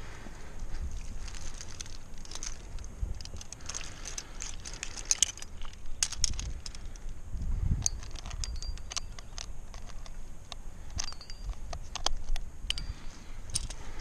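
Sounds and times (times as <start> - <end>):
metal climbing gear clinking: 0.7 - 14.0
short metallic rings: 11.0 - 11.7.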